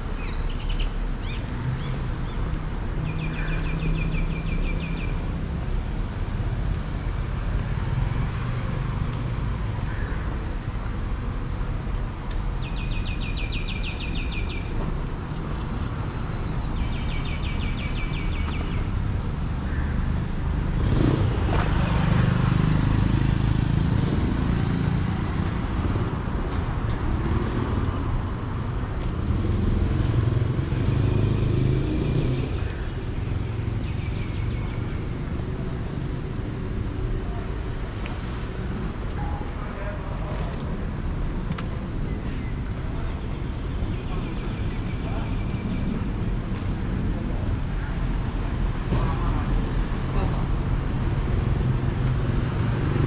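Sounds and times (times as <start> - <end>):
low traffic rumble: 0.0 - 53.0
vehicle engine: 17.5 - 53.0.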